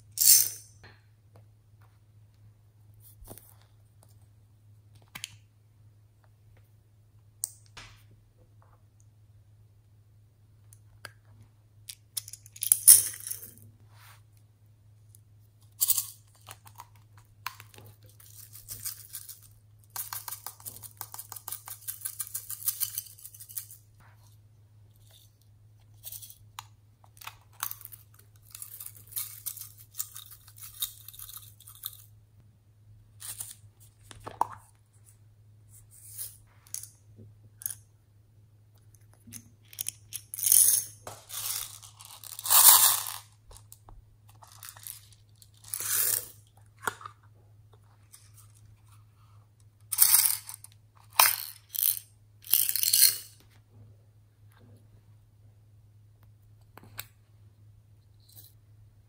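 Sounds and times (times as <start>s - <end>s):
beads rattling in glass bowls: 39.8s - 43.4s, 44.4s - 46.4s, 51.2s - 53.4s.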